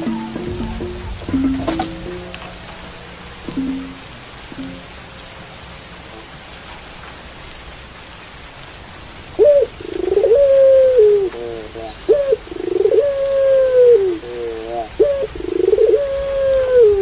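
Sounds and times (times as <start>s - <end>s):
dove cooing: 0.0s - 5.0s, 9.4s - 17.0s
steady rain hiss: 0.0s - 17.0s.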